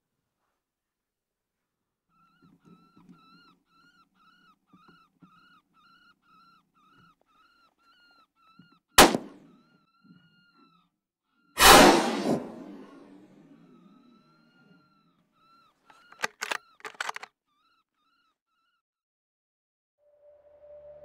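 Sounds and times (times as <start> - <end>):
rifle shots: 9.0 - 9.4, 11.6 - 13.1.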